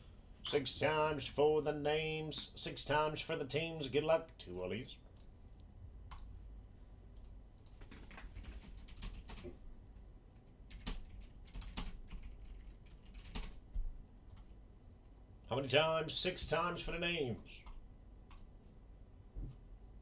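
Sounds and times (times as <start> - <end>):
computer keyboard typing: 7.2 - 9.6, 10.4 - 13.6.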